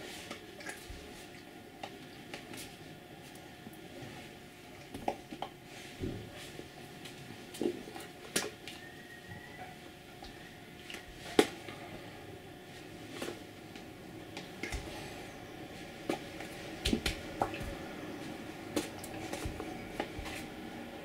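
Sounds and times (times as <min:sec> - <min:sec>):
faint steady hum: 0:00.0 - 0:21.0
hands smacking and clicking: 0:16.1 - 0:17.8.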